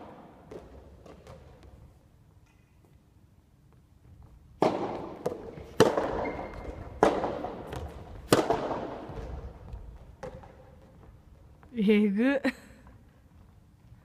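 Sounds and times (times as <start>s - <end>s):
racket hitting ball: 4.6s - 11.1s.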